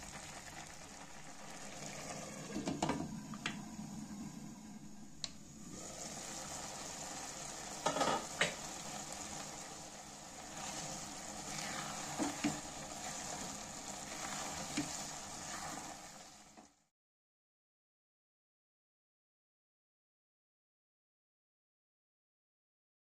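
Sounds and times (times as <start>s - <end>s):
noodles sizzling in a pan: 0.0s - 16.9s
spatula scraping a pan: 10.4s - 16.5s.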